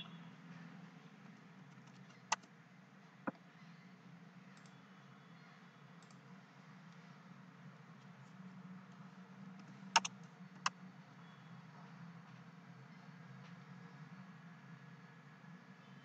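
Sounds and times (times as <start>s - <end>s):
sharp computer clicks: 9.6s - 10.8s.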